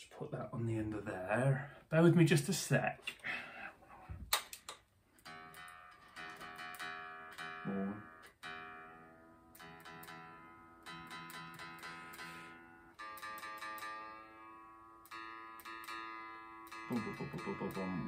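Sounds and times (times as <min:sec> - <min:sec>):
electric guitar strings plucked: 0:05.2 - 0:18.0.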